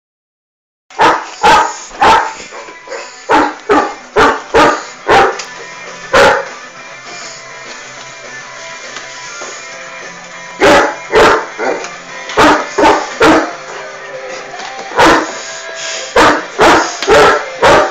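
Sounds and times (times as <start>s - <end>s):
music playing: 0.9s - 17.9s
dog barking: 1.0s - 5.4s, 6.1s - 6.6s, 10.6s - 13.6s, 14.9s - 15.4s, 16.1s - 17.9s.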